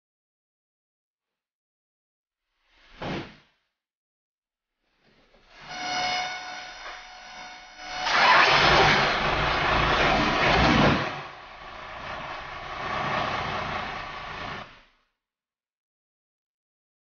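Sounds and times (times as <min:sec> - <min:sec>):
truck engine and road noise: 0:08.1 - 0:14.8.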